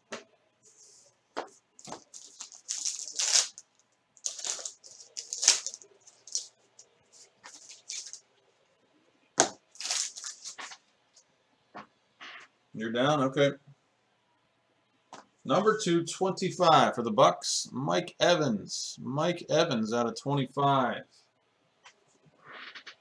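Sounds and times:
cards rustling and tearing: 0:01.8 - 0:03.6, 0:04.2 - 0:06.5, 0:07.2 - 0:08.2, 0:09.7 - 0:10.8.

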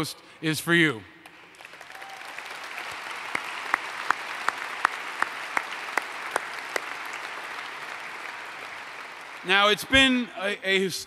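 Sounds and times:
person clapping close by: 0:01.3 - 0:09.5
audience applauding: 0:01.3 - 0:10.3.

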